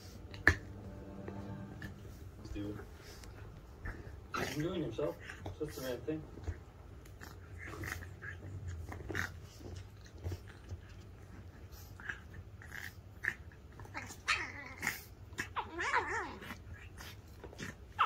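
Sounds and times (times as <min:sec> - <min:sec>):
dogs snuffling: 0:00.0 - 0:13.9
dog play growl: 0:00.0 - 0:18.0.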